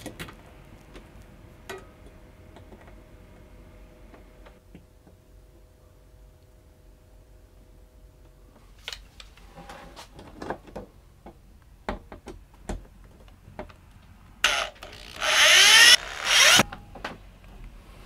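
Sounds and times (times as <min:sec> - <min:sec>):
drill driving screws: 0:14.4 - 0:16.6.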